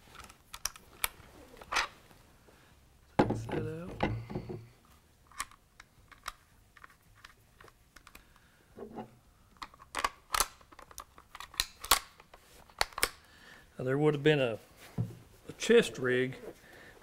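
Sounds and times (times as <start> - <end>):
rifle parts clicking and tapping: 5.3 - 8.4, 9.6 - 13.2.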